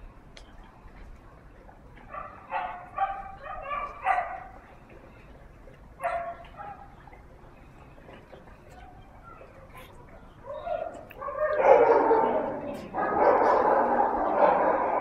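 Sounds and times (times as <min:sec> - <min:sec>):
puppies yipping and barking: 0:02.1 - 0:04.6.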